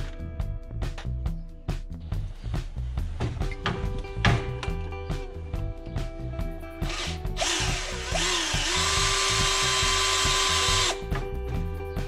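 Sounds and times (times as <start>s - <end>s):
background music with steady beat: 0.0s - 12.0s
electric drill running: 6.9s - 11.0s.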